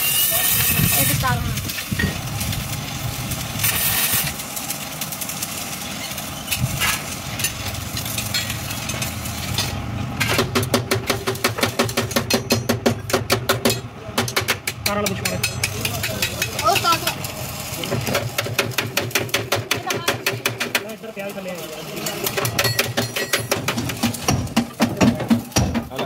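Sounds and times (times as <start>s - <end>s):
arc welding crackle: 0.0s - 26.0s
hammer tapping metal: 10.2s - 17.0s, 18.1s - 20.9s, 22.3s - 26.0s.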